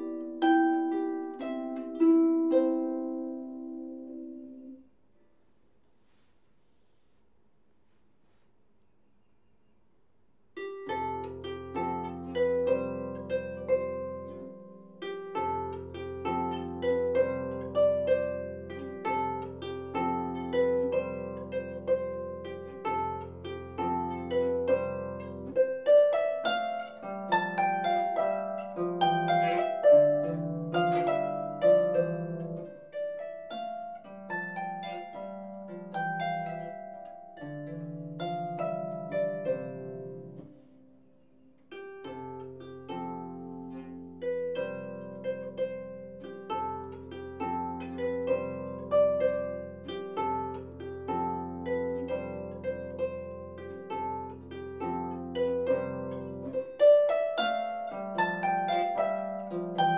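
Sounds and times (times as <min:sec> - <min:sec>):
solo harp playing folk tune: 0:00.0 - 0:05.4, 0:10.5 - 0:59.9.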